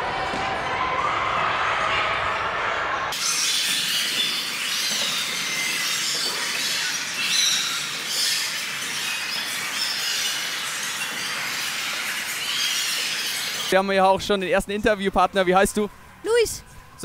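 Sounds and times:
sports hall background noise: 0:00.0 - 0:17.0
sports shoes squeaking on floor: 0:03.2 - 0:13.8.

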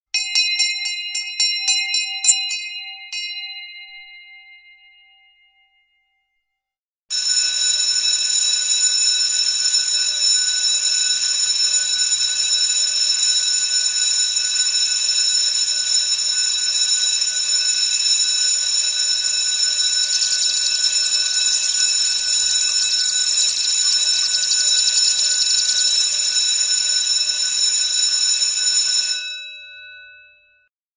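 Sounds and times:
bell struck rapidly: 0:00.2 - 0:04.6, 0:20.0 - 0:26.7
electric school bell ringing: 0:07.1 - 0:29.8.

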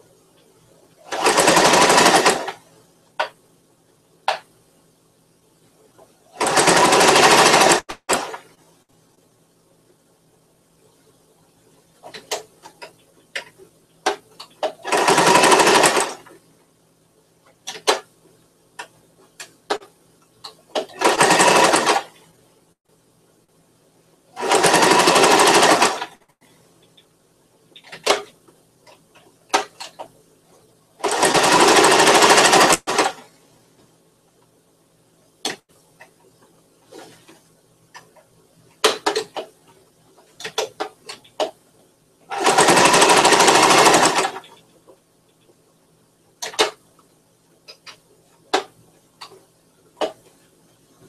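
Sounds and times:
sewing machine stitching: 0:01.0 - 0:03.3, 0:06.3 - 0:08.6, 0:14.1 - 0:16.4, 0:20.7 - 0:22.2, 0:24.4 - 0:26.3, 0:31.0 - 0:33.3, 0:42.3 - 0:44.6.

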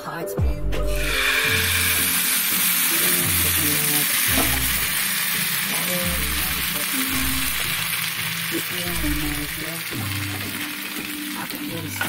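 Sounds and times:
batter sizzling in hot oil: 0:01.0 - 0:12.0.

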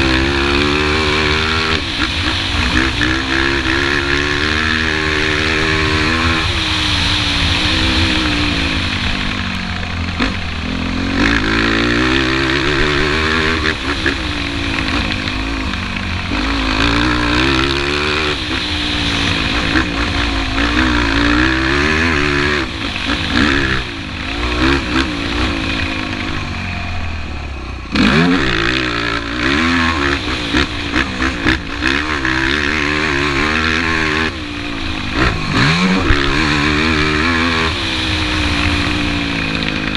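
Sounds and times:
atv engine revving: 0:00.0 - 0:39.9.

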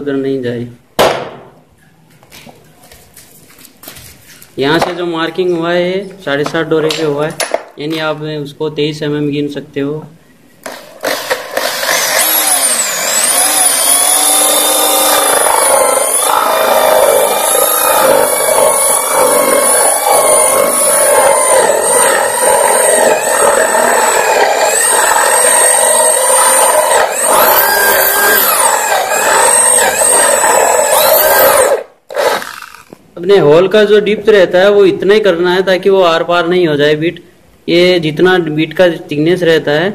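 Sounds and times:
electric drill whining under load: 0:10.7 - 0:33.0.

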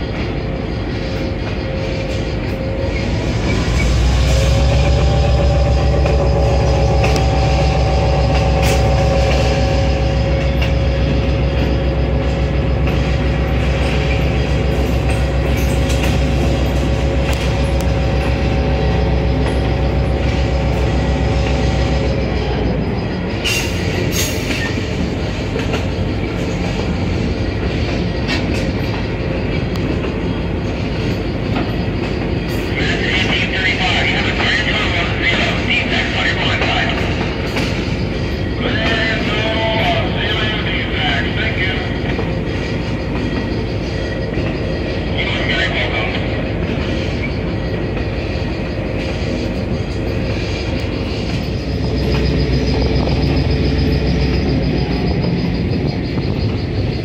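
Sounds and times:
train rumbling on rails: 0:00.0 - 0:57.0
wheel-flange squeal: 0:00.0 - 0:57.0.

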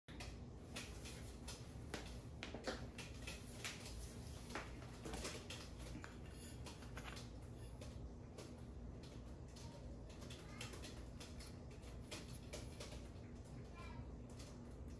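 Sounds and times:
low steady hum: 0:00.1 - 0:14.9.

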